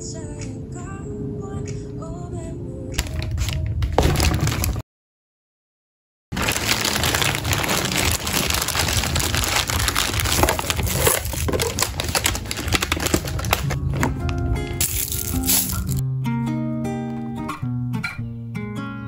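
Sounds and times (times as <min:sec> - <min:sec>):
plastic bag crinkling and rustling: 0:03.0 - 0:04.8, 0:06.3 - 0:16.0.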